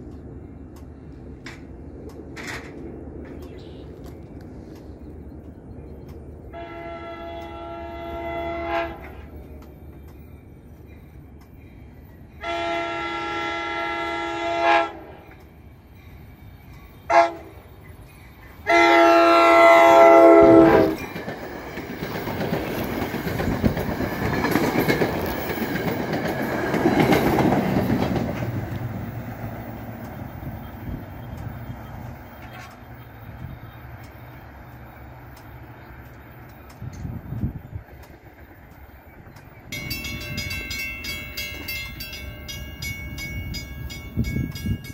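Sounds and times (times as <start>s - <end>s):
train horn blasts: 6.5s - 9.4s, 12.4s - 15.4s, 17.0s - 17.6s, 18.6s - 21.0s
train wheels clacking on rails: 14.9s - 44.9s.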